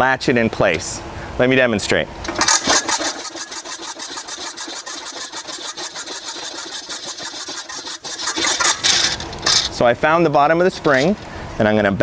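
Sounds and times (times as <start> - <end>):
hose reel rapid clicking: 2.3 - 9.8.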